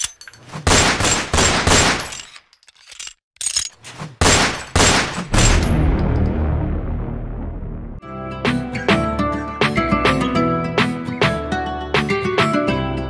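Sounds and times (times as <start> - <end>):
rapid gunfire volleys: 0.7 - 2.1, 4.2 - 5.7.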